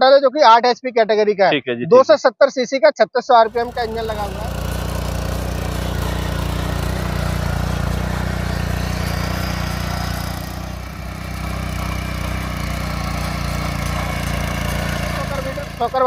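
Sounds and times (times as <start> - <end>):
petrol engine running: 3.4 - 16.0.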